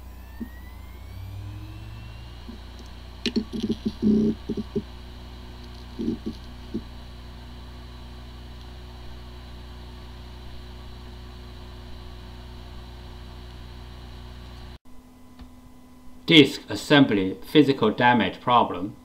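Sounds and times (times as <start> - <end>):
short low noises: 0.0 - 14.3
hard drive whirring: 0.0 - 17.3.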